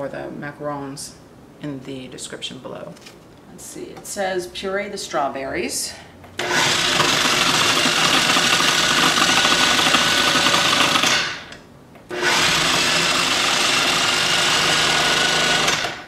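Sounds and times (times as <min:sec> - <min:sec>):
food processor running: 0:06.4 - 0:11.5, 0:12.1 - 0:16.0.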